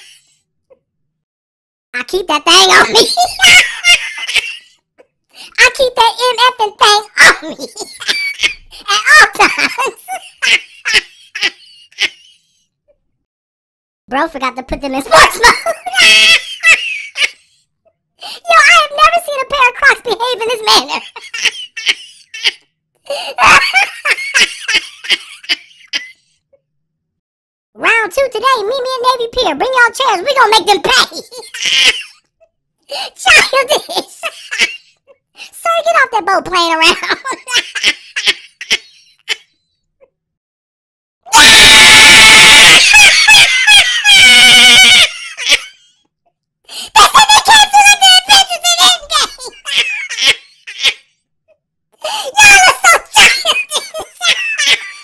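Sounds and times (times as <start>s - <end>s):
person laughing: 2.8s - 4.7s, 7.2s - 12.4s, 21.0s - 26.2s, 41.4s - 45.8s, 52.1s - 55.0s
person screaming: 41.3s - 45.1s.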